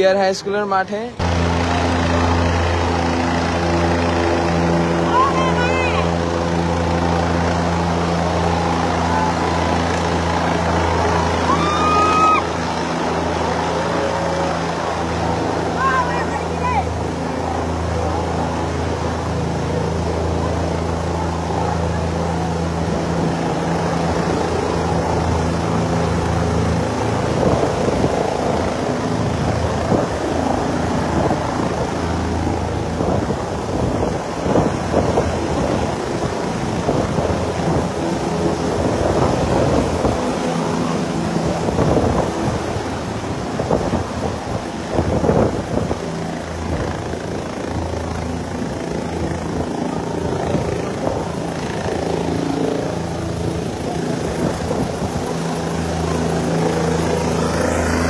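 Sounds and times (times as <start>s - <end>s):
helicopter rotor and turbine: 0.0s - 58.0s
rotor downwash buffeting microphone: 0.0s - 58.0s.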